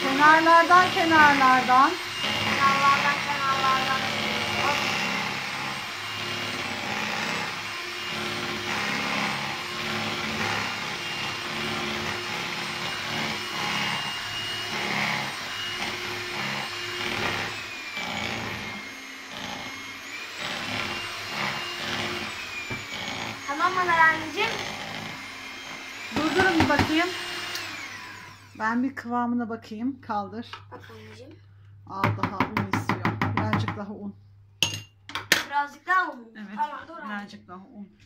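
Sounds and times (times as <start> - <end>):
electric mixer whirring: 0.0 - 29.0.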